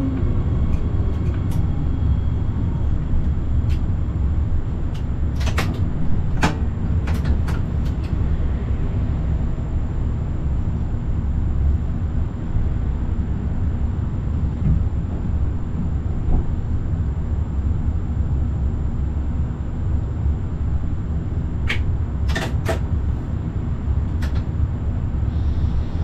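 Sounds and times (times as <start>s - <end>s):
train low rumble: 0.0s - 26.0s
sharp clicks and knocks: 4.9s - 8.2s, 21.6s - 22.9s.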